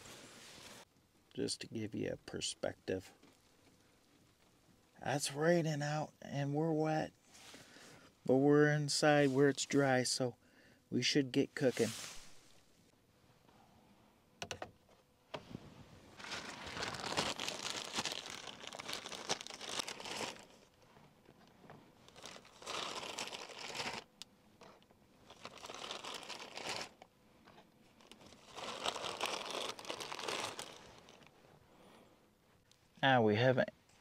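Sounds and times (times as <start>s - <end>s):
plastic packaging crinkling: 16.1s - 20.8s, 22.0s - 24.1s, 25.2s - 27.1s, 27.9s - 31.3s.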